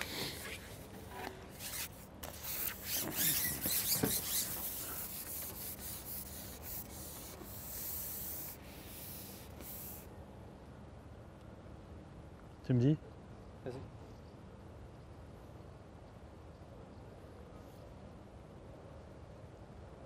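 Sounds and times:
fishing pole rubbing and scraping: 0.0s - 10.1s.

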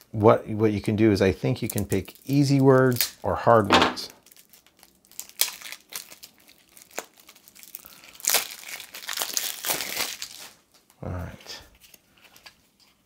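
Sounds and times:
plastic shrink-wrap crinkling: 1.4s - 3.3s, 4.1s - 11.0s, 11.7s - 13.0s.

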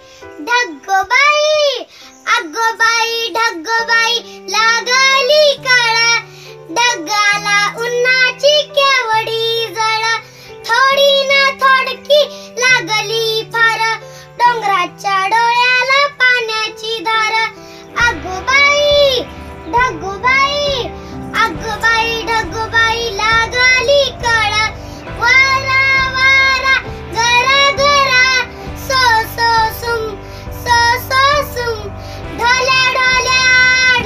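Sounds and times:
girl singing: 0.0s - 34.0s
backing music with bass: 18.0s - 34.0s.

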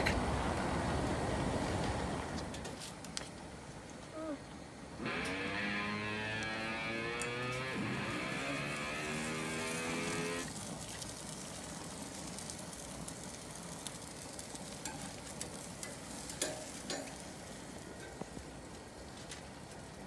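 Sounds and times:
steady pitched tone: 5.0s - 10.5s
patties sizzling on grill: 5.0s - 19.1s
tongs clicking on grate: 15.8s - 17.1s.

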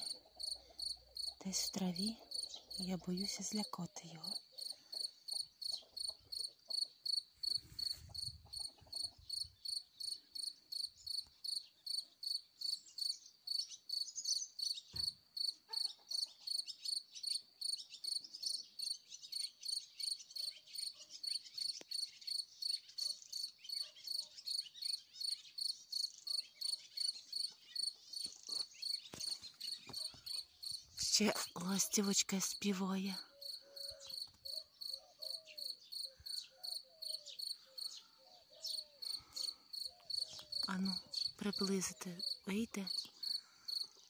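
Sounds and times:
cricket chirping: 4.6s - 15.6s, 16.5s - 30.9s, 33.4s - 41.6s, 43.2s - 43.9s.

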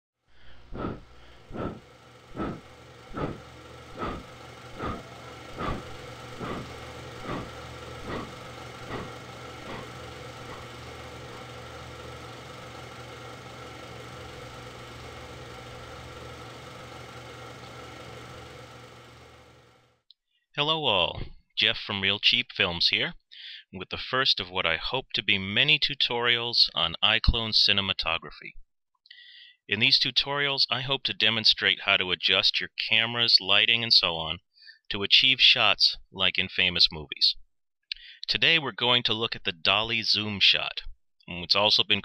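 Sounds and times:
droning hum: 0.3s - 19.9s.

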